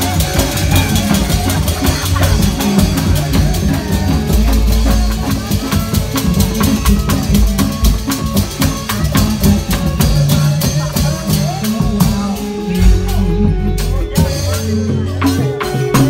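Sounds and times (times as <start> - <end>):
fast steady drumming: 0.0 - 16.0
sharp rapid percussive strikes: 0.0 - 16.0
deep bass: 9.1 - 16.0.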